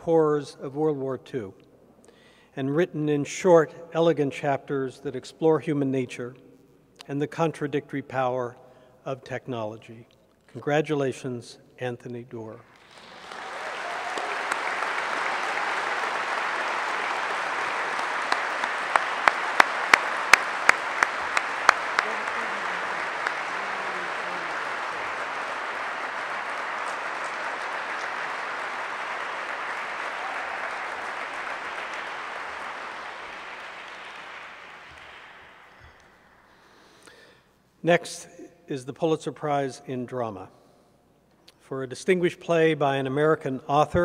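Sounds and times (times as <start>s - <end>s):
audience applauding: 12.6s - 36.6s
person clapping loudly and sharply: 12.7s - 36.4s.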